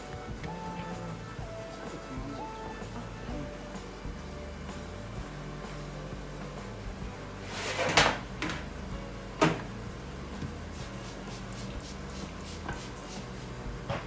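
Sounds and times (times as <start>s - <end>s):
faint background music: 0.0s - 14.0s
rolling pin scraping dough: 7.4s - 8.0s.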